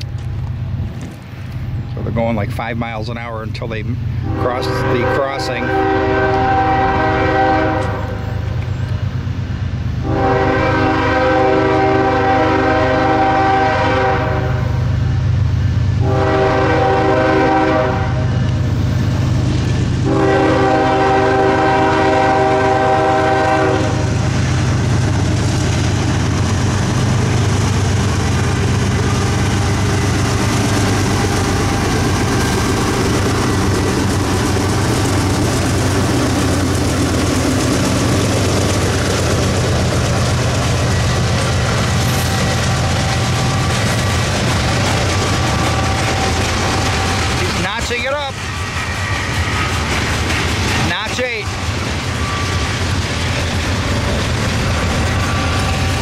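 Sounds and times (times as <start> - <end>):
diesel locomotive engines: 0.0 - 56.0
train wheels on rails: 0.0 - 56.0
locomotive air horn blasts: 4.2 - 8.4, 10.0 - 14.8, 16.0 - 18.3, 20.0 - 24.2.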